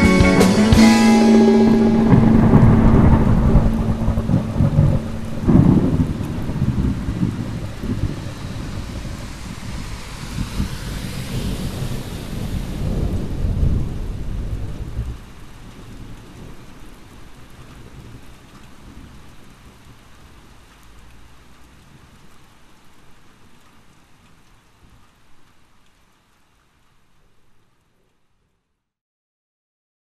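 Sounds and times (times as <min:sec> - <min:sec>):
thunder rumbling: 0:00.0 - 0:18.2
steady rain: 0:00.0 - 0:28.7.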